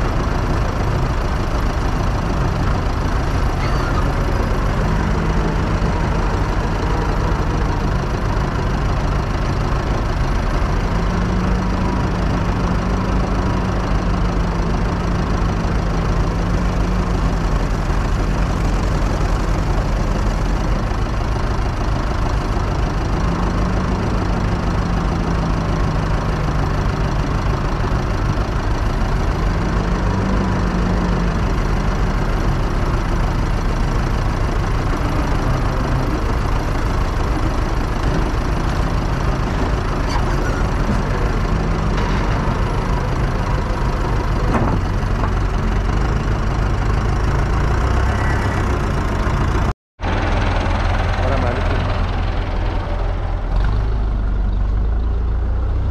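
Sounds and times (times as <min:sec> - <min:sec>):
backhoe engine revving: 0:00.0 - 0:55.9
tractor diesel engine idling: 0:00.0 - 0:55.9.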